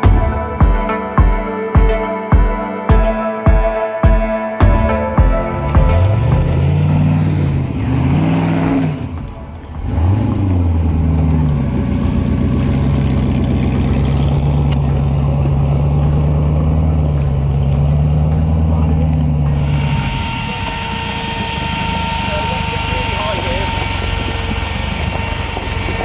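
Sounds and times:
buggy engine revving: 5.3s - 26.0s.

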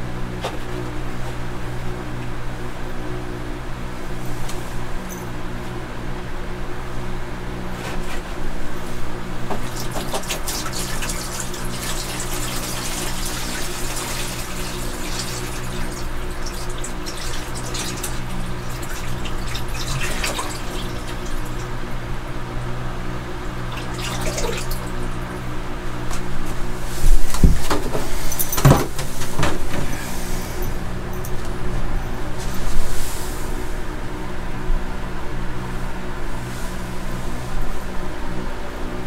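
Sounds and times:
steady low hum: 0.0s - 39.0s
water splashing onto substrate: 9.6s - 21.7s.

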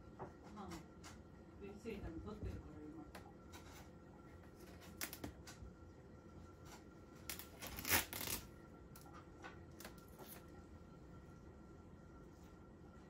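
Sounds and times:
packing tape crinkling: 4.7s - 5.3s, 7.2s - 8.5s
tape tearing rasp: 7.3s - 8.5s.

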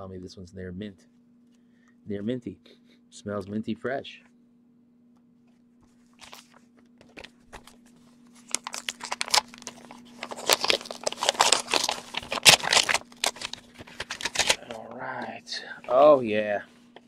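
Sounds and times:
faint steady hum: 0.0s - 17.0s
paper rustling and crinkling: 5.9s - 14.8s.

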